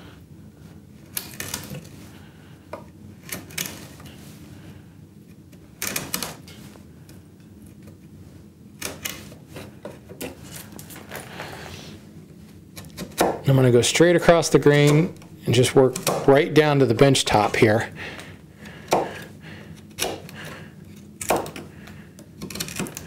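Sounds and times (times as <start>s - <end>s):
chisel cracking wood chips: 12.7s - 13.4s, 15.9s - 16.4s, 18.8s - 23.0s.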